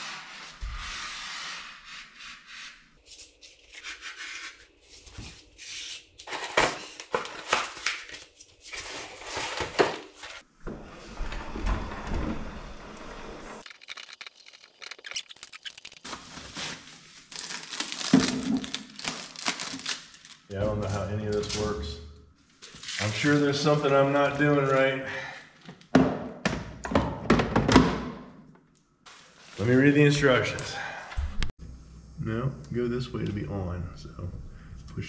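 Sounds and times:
plastic packing rustling: 0:06.2 - 0:10.4, 0:13.6 - 0:20.5.

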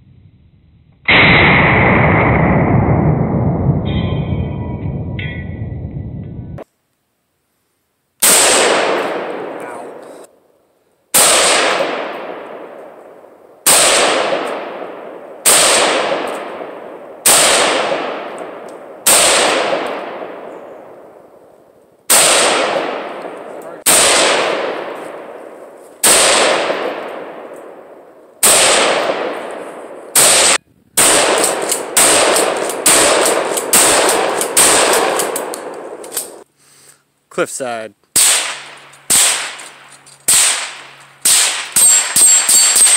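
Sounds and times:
rifle and shotgun gunshots: 0:01.1 - 0:02.7, 0:08.2 - 0:10.3, 0:11.1 - 0:21.5, 0:22.1 - 0:36.4, 0:38.2 - 0:42.9.

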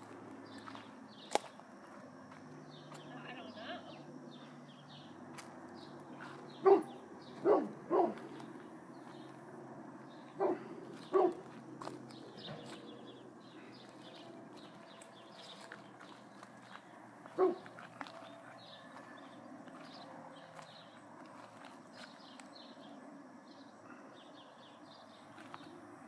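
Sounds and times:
dog barking: 0:06.6 - 0:08.4, 0:10.4 - 0:11.5, 0:17.4 - 0:18.3.

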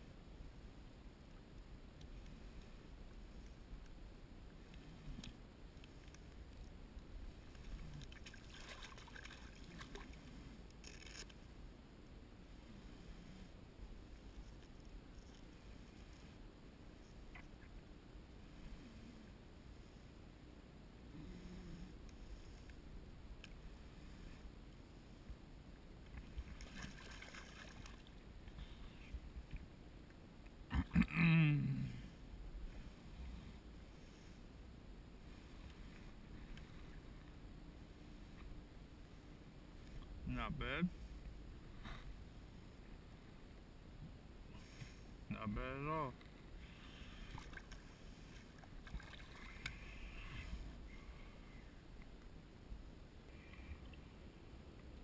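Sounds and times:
faint low water noise: 0:00.0 - 0:55.0
fish splashing and thrashing: 0:07.6 - 0:11.3, 0:26.2 - 0:28.2.

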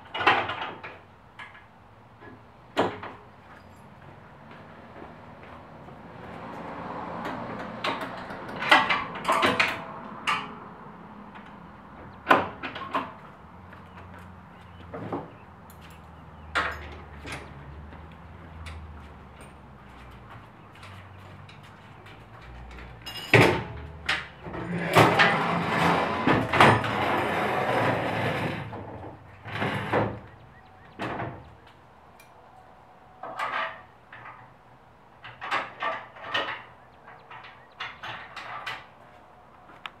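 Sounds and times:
metal clanks and thumps: 0:07.2 - 0:10.6, 0:22.7 - 0:30.3
metal rattling and scraping: 0:20.8 - 0:30.3, 0:35.2 - 0:39.0.

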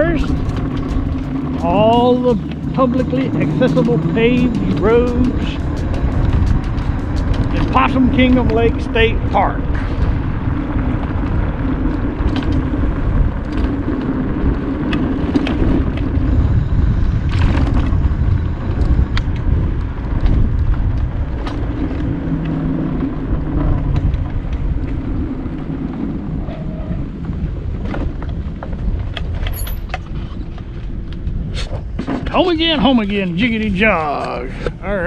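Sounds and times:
clicks and rattles from bumps: 0:00.0 - 0:08.8
motor and tyres rumbling: 0:00.0 - 0:35.0.

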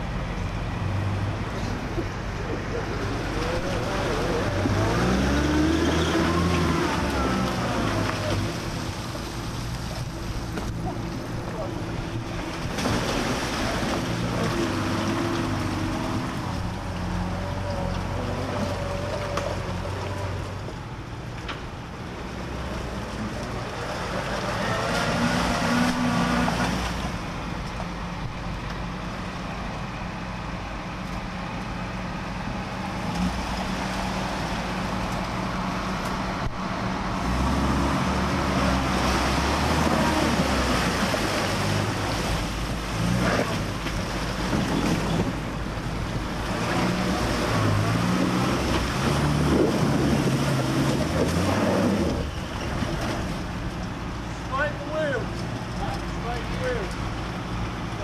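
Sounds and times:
wheels spinning in mud and water: 0:00.0 - 0:58.0
engine revving hard: 0:03.8 - 0:08.5.

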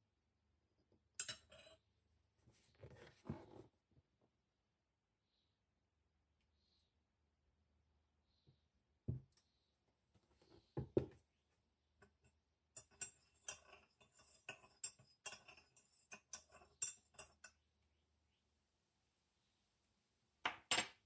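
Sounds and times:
teaspoon clinking in a mug: 0:12.8 - 0:17.6.

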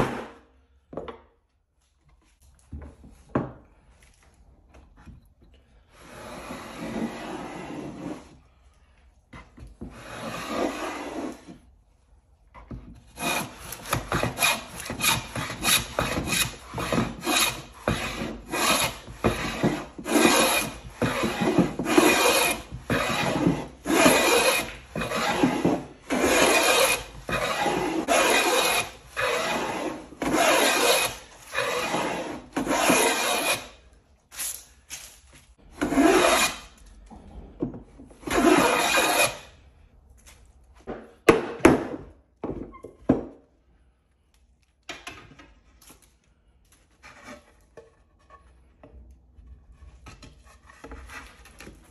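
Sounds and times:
hand plane strokes on wood: 0:13.1 - 0:33.8, 0:35.8 - 0:36.7, 0:38.3 - 0:39.4.

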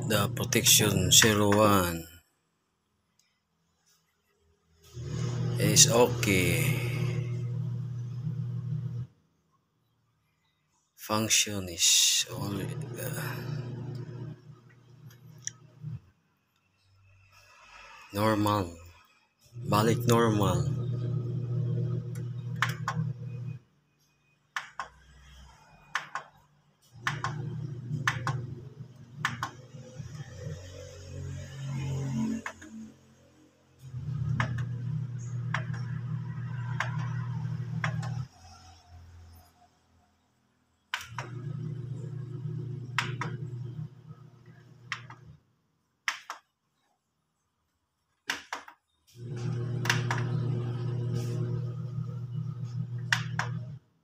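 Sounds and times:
low steady hum: 0:12.4 - 0:16.0, 0:19.6 - 0:23.6, 0:49.2 - 0:53.8.

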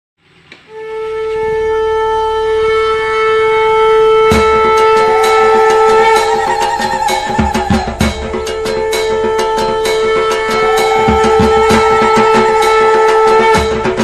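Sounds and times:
long held horn-like note: 0:00.7 - 0:14.0
wavering high note: 0:00.7 - 0:14.0
drum strokes: 0:04.3 - 0:14.0.

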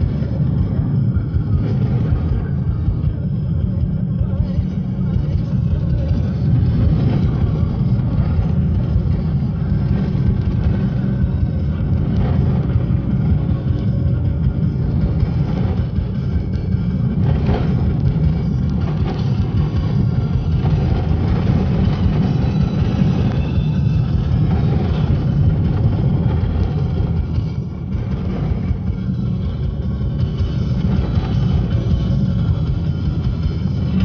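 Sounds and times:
car cabin rumble on wet road: 0:00.0 - 0:34.0.

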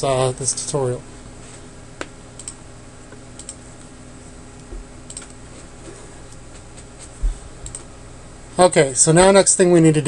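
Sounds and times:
steady low hum: 0:00.0 - 0:10.0
mouse and keyboard clicks: 0:05.1 - 0:05.4.

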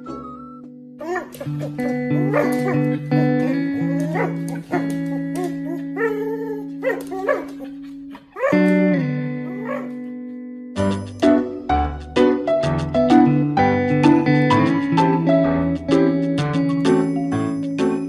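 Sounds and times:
background music with guitar: 0:00.0 - 0:18.0
dog making vocal calls: 0:01.0 - 0:08.7.

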